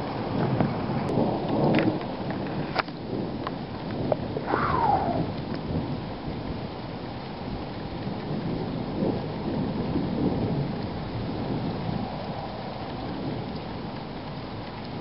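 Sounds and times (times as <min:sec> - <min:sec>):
rain falling: 0:00.0 - 0:15.0
thunder rumbling: 0:03.0 - 0:15.0
whistle falling in pitch: 0:04.5 - 0:05.3.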